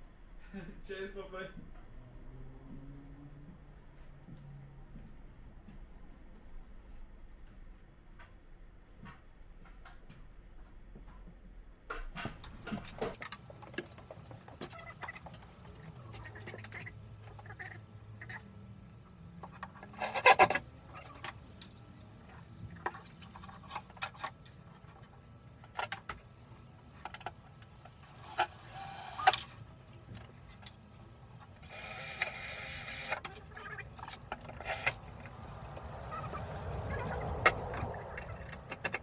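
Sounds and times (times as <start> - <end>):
cordless drill running: 31.6 - 33.2.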